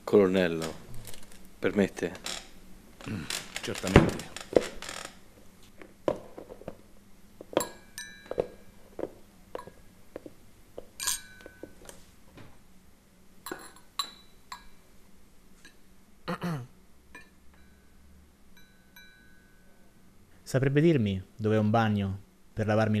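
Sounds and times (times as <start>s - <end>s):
glassware and tableware clinking: 7.5s - 8.8s, 9.5s - 9.9s, 11.0s - 12.0s, 13.4s - 14.8s, 17.1s - 17.9s, 18.6s - 19.7s.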